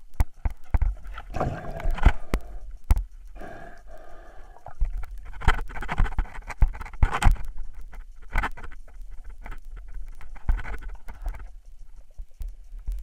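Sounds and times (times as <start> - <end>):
underwater clicks and scraping: 0.0 - 13.0
rushes of water: 0.8 - 2.7.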